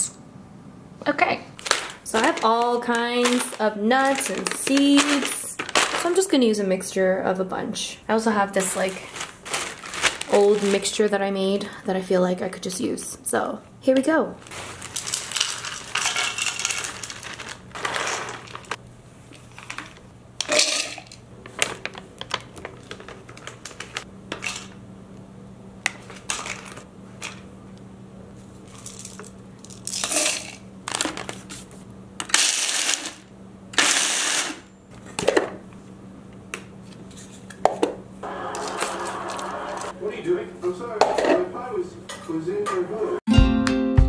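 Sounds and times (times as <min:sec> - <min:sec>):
nuts clattering into plastic bowl: 0:01.6 - 0:06.2, 0:14.6 - 0:18.8, 0:19.5 - 0:24.8, 0:26.1 - 0:27.4, 0:28.8 - 0:31.3
food processor pulsing: 0:33.8 - 0:34.6, 0:38.2 - 0:40.0.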